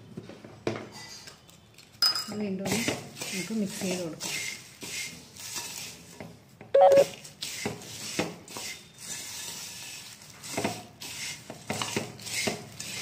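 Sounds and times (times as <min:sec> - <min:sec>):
spoon scraping dry snack mix: 0:02.7 - 0:06.2, 0:07.1 - 0:13.0.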